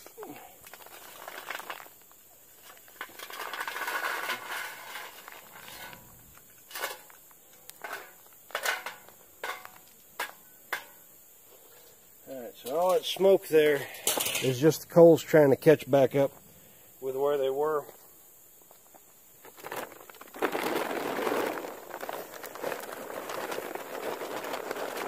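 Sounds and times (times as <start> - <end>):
charcoal briquettes tumbling: 0.0 - 16.4, 17.0 - 25.0
briquettes clinking and knocking: 0.6 - 11.1, 12.6 - 15.0.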